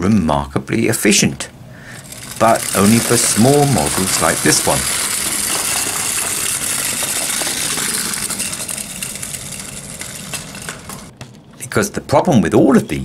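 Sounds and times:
clockwork toy whirring and clicking: 1.8 - 11.2.

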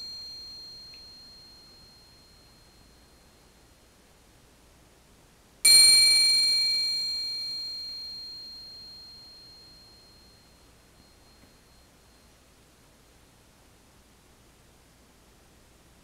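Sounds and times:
triangle ringing: 0.0 - 3.8, 5.7 - 12.7.

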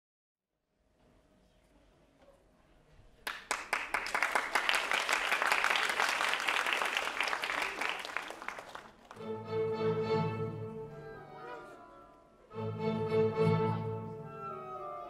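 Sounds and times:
audience applause: 3.2 - 9.2
orchestral music with strings: 9.2 - 15.0.

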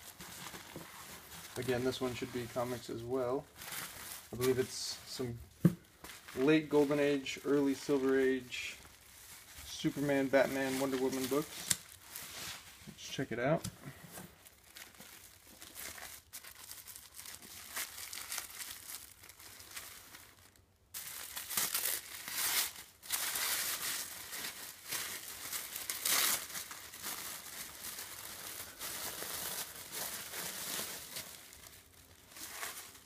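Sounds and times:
tissue paper crinkling: 0.0 - 13.2, 14.1 - 33.0
plastic wrapping tearing: 6.4 - 12.2, 14.4 - 33.0.

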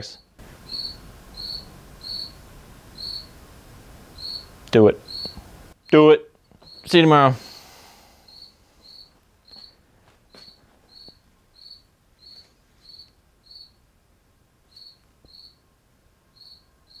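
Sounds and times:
cricket chirping: 0.6 - 3.4, 4.2 - 5.4, 6.6 - 6.9, 8.2 - 13.8, 14.7 - 15.6, 16.3 - 17.0.

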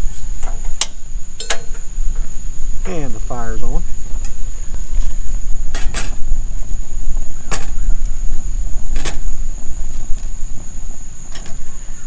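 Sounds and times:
high insect trill: 0.0 - 12.0
steady low rumble: 0.0 - 12.0.

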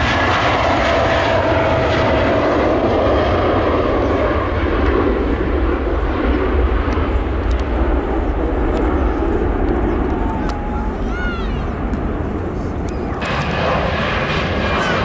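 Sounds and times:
jet airliner roaring on take-off: 0.0 - 15.0
jet engine whine falling in pitch: 0.0 - 15.0.

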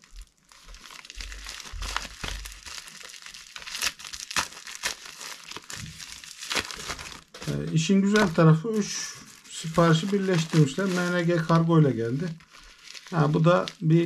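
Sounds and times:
plastic packaging crinkling and tearing: 0.0 - 14.0.

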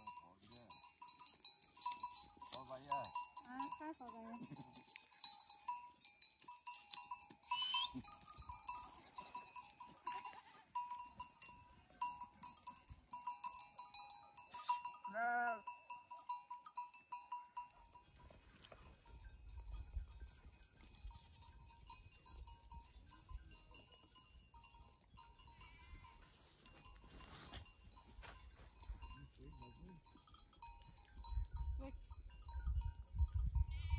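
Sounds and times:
small bells clinking: 0.0 - 33.9
sheep bleat: 14.6 - 15.7.

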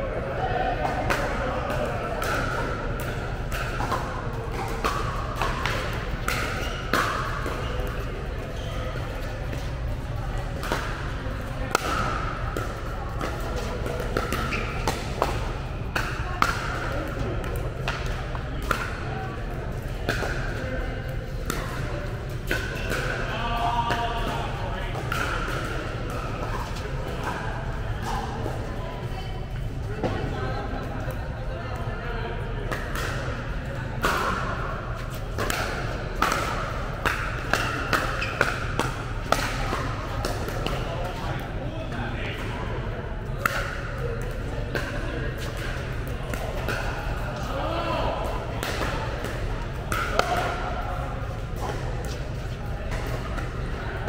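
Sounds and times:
paddles hitting pickleball: 0.8 - 9.7, 10.5 - 20.6, 21.4 - 28.6, 32.7 - 33.3, 34.0 - 41.4, 43.4 - 53.6
paddles hitting plastic ball: 35.0 - 40.8, 48.6 - 50.7.

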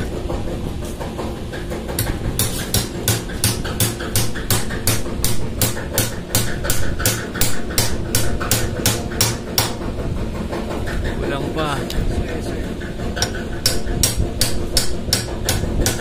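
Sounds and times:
machinery hum: 0.0 - 16.0
hammer striking metal: 2.0 - 9.9, 13.2 - 16.0.

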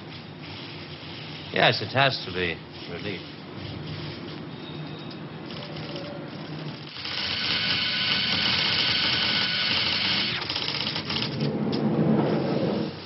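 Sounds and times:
small electric motor whirring: 5.5 - 11.3.

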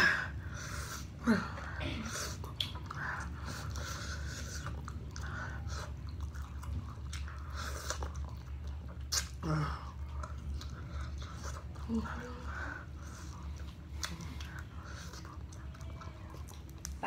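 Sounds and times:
chewing and biting chicken: 0.4 - 17.0.

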